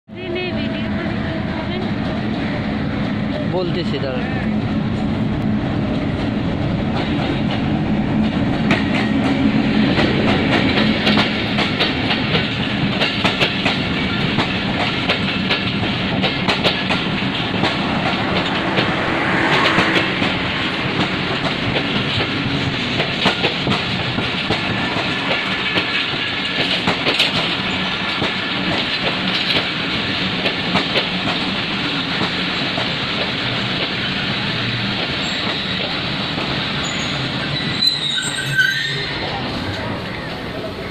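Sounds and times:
diesel locomotive engine droning: 0:00.1 - 0:40.9
train wheels clicking over rail joints: 0:05.4 - 0:38.6.

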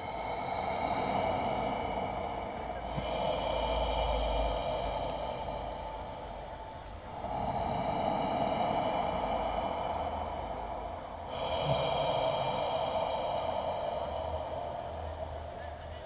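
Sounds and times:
hissing drone: 0:00.0 - 0:16.0.

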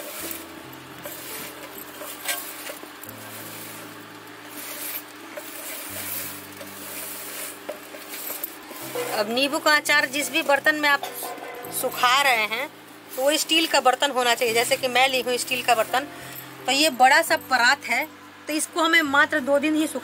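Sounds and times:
fruit scraping on metal tray: 0:00.0 - 0:12.0.

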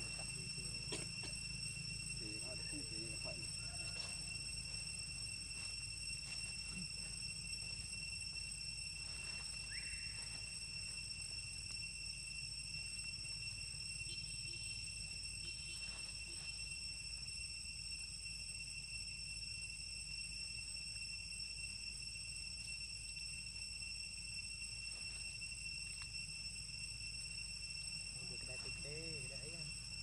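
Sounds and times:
rising chirp: 0:00.0 - 0:11.4
high-pitched insect drone: 0:00.0 - 0:30.0.

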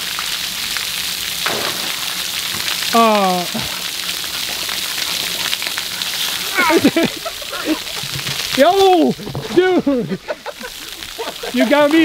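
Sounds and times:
water jets spraying on concrete: 0:00.0 - 0:12.0
man calling out: 0:02.9 - 0:03.8, 0:06.5 - 0:06.9.

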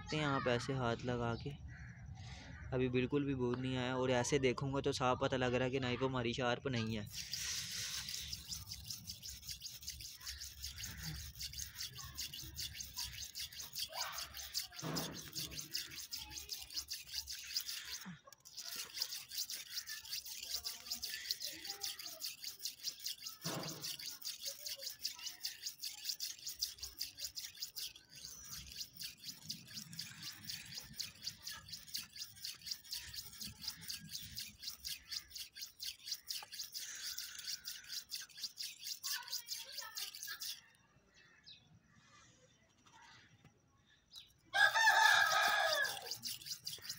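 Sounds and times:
knife scraping on sharpening stone: 0:07.0 - 0:40.8, 0:44.6 - 0:46.9.

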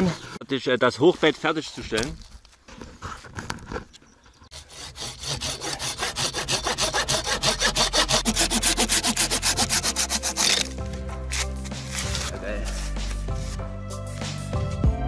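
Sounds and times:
hand saw cutting wood: 0:04.5 - 0:13.6.

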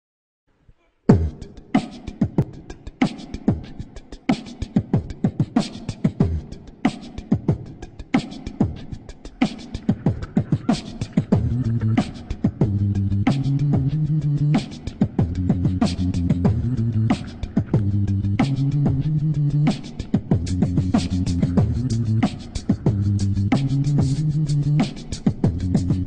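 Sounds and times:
background music with drum beat: 0:01.1 - 0:26.0
deep bass line: 0:11.4 - 0:12.0, 0:12.6 - 0:14.6, 0:15.2 - 0:26.0.

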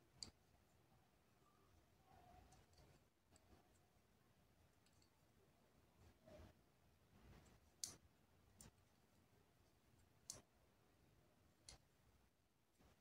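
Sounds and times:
crochet hook clicking on fingernails: 0:00.2 - 0:00.4, 0:07.8 - 0:08.0, 0:10.2 - 0:10.5, 0:11.6 - 0:11.9.

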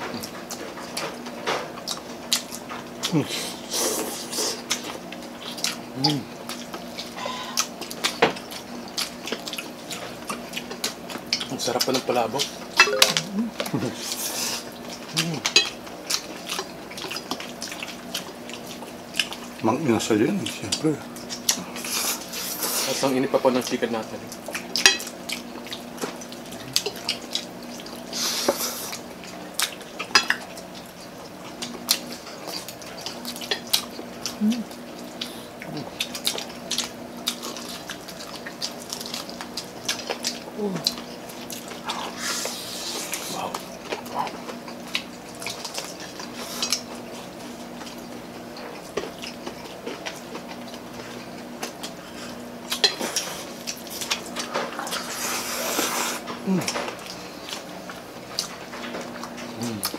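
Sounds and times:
chewing and mouth sounds: 0:00.0 - 0:19.6, 0:20.4 - 0:23.0, 0:23.6 - 0:59.9
plates clinking: 0:12.8 - 0:13.3
slurping noodles: 0:54.8 - 0:56.3.

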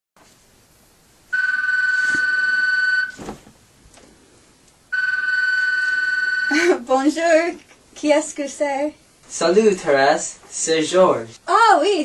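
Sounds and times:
telephone ringing: 0:01.3 - 0:03.2, 0:04.9 - 0:06.7.

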